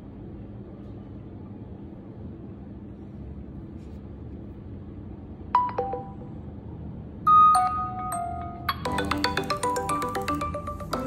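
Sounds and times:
low background hum: 0:00.0 - 0:11.0
electronic phone chimes: 0:07.3 - 0:11.0.

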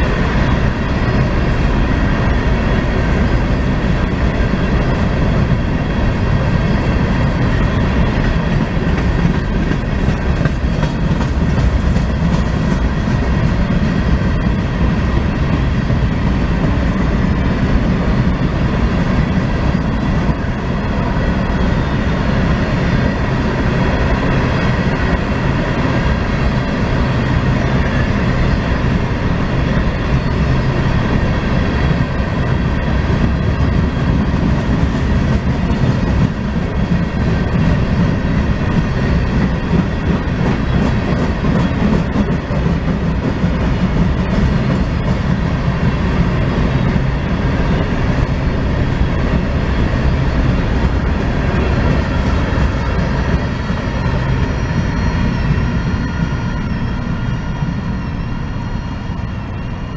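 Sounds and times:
wheels clacking over rail joints: 0:00.0 - 0:21.6
train wheels rumbling on rail: 0:00.0 - 0:59.9.

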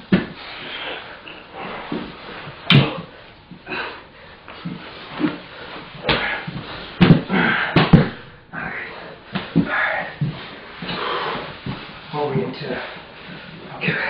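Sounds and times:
bodies thudding and scuffling on mat: 0:00.0 - 0:00.5, 0:04.4 - 0:14.0.

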